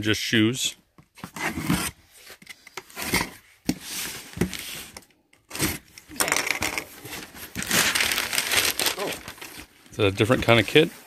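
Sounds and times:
cardboard boxes being handled: 6.9 - 11.0.

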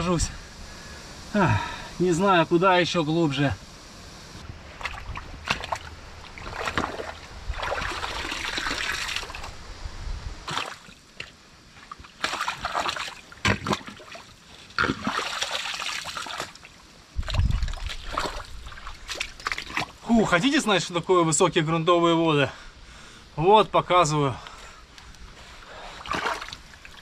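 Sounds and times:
water splashing and sloshing: 4.4 - 9.6, 10.4 - 20.6, 25.4 - 27.0.

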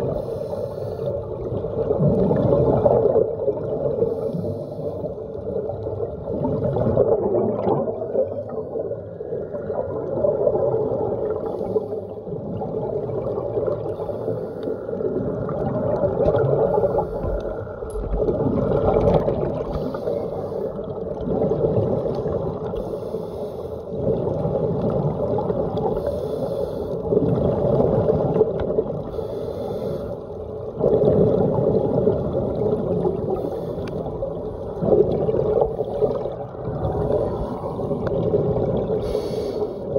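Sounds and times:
underwater regulator bubbles gurgling: 0.0 - 39.9.

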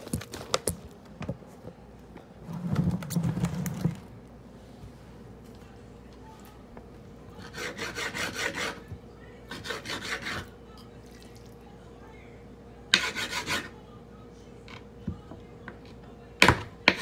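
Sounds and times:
knife sawing through raw meat: 7.4 - 8.9, 9.5 - 10.5, 13.0 - 13.7.

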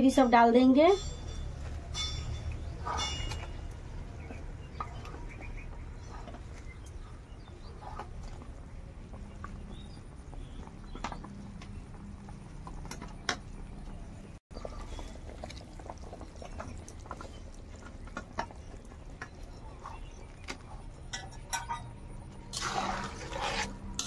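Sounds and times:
curry boiling and bubbling: 2.4 - 24.0
spatula scraping and sloshing: 22.5 - 24.0.

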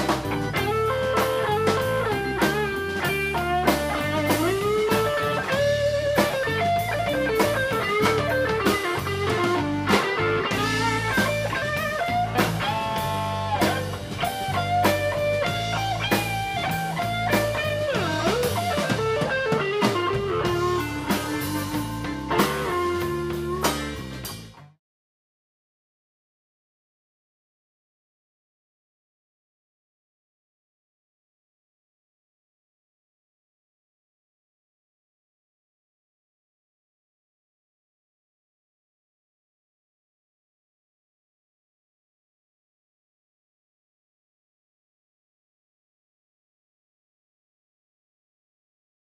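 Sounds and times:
lead electric guitar: 0.0 - 24.7
bass and drum kit: 0.0 - 24.8.

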